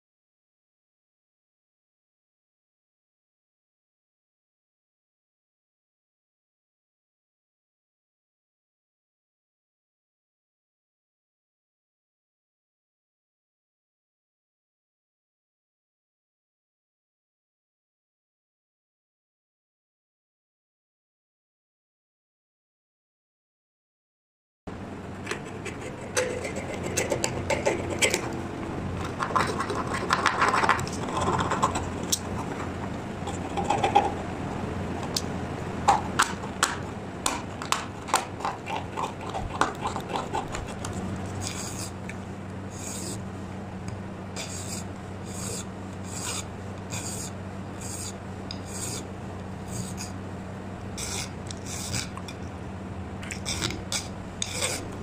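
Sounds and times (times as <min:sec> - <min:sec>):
file rasping on metal: 0:25.3 - 0:28.4, 0:38.1 - 0:42.0, 0:42.7 - 0:43.2, 0:44.4 - 0:50.2, 0:51.0 - 0:52.2, 0:53.4 - 0:55.0
knife blade scratching brass: 0:25.3 - 0:28.4, 0:39.2 - 0:42.0, 0:42.7 - 0:43.2, 0:44.4 - 0:49.1, 0:49.7 - 0:50.2, 0:51.0 - 0:52.3, 0:53.4 - 0:55.0.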